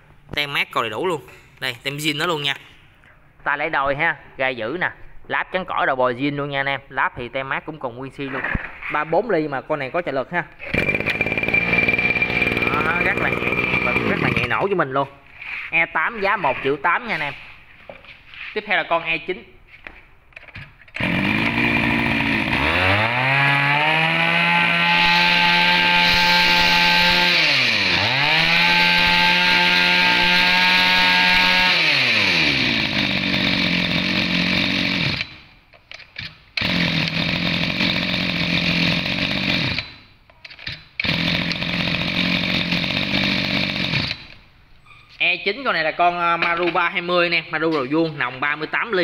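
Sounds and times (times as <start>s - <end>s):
brush cutter engine revving: 10.6s - 14.7s, 21.0s - 35.4s, 36.6s - 40.0s, 41.0s - 44.4s.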